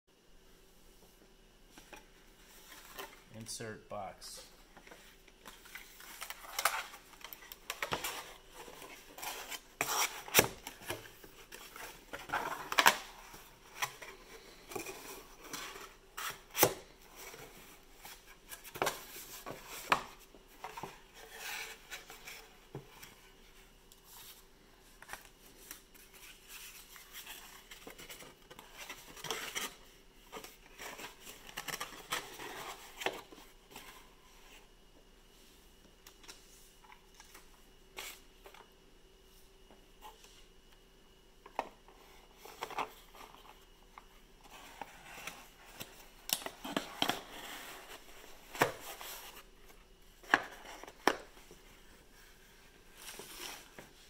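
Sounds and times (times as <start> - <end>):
card rustling and scraping: 4.8 - 23.4, 41.9 - 54.0.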